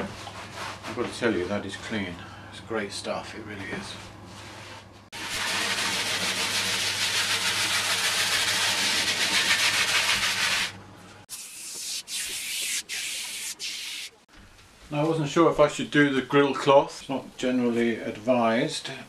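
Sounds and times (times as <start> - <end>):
hand scrubbing vinyl covering: 5.2 - 14.2
aerosol can spraying: 11.3 - 14.2.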